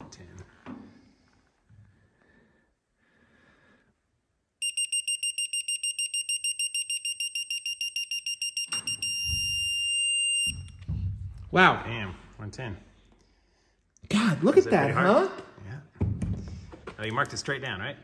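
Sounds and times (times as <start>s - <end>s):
torque wrench beeping rapidly: 4.6s - 10.7s
steady beep: 4.6s - 10.8s.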